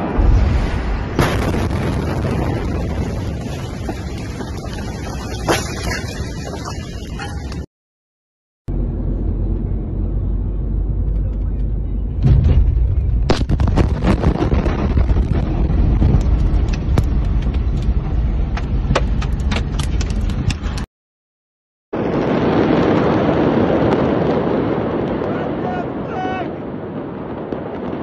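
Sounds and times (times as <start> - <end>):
heavy explosion boom: 0.0 - 5.5, 12.2 - 18.9, 22.0 - 28.0
low rumble inside car: 8.7 - 12.6.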